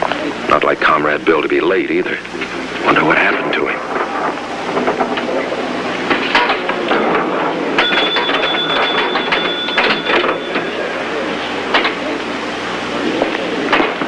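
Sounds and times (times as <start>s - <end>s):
steady high tone: 2.8s - 13.3s
pinball machine clicks and clacks: 6.2s - 10.9s.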